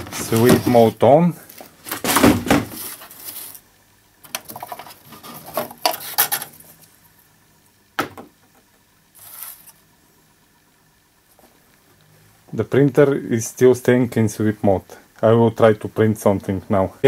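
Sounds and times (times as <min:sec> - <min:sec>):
paper rustling: 0:00.0 - 0:03.6.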